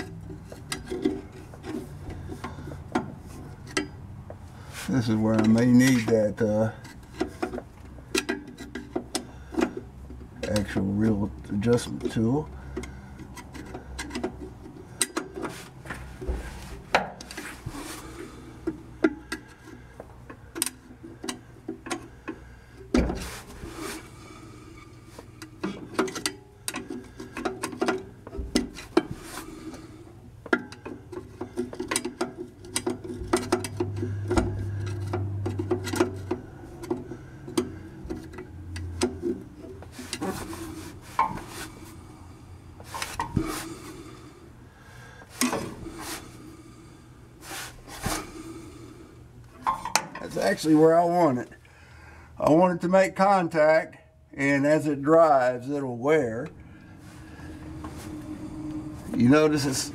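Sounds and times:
screwdriver clicking and scraping metal: 0:25.4 - 0:29.1.

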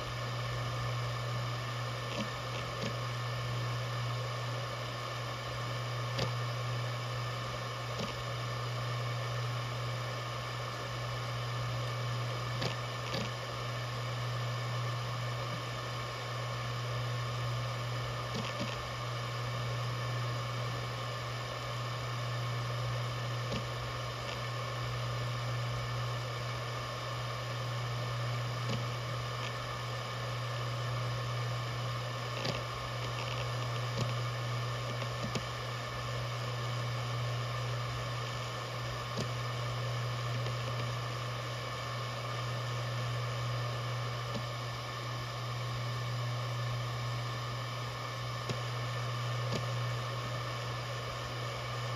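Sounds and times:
hard drive spinning buzz: 0:00.0 - 0:51.9
hard drive ticks: 0:00.4 - 0:04.2, 0:04.8 - 0:20.9, 0:23.3 - 0:24.6, 0:27.4 - 0:29.7, 0:30.4 - 0:51.9
hard drive head clicks: 0:34.9 - 0:35.5.

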